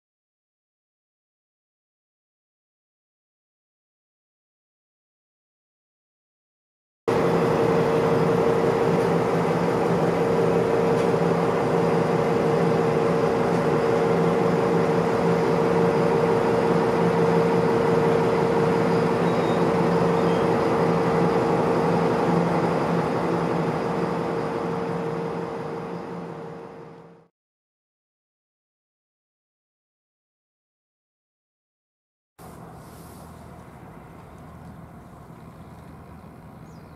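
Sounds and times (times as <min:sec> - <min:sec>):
boat diesel engine droning: 0:07.1 - 0:27.3, 0:32.4 - 0:36.9.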